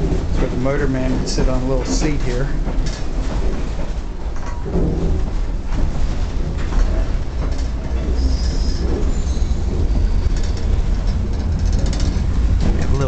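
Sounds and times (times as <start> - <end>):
trolley car rumbling on rails: 0.0 - 13.0
wheels clicking: 6.6 - 13.0
wheel squeal: 8.2 - 10.8.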